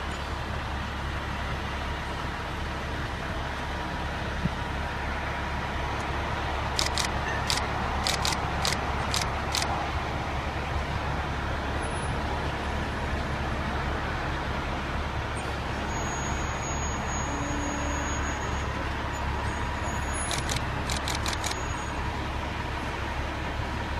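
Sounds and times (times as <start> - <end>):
truck engine running: 5.7 - 11.6
sharp clicks: 6.8 - 9.7, 20.3 - 21.6.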